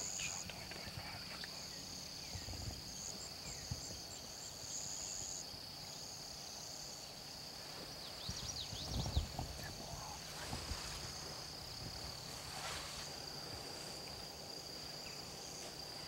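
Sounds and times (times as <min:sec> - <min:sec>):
insects chirring: 0:00.0 - 0:16.0.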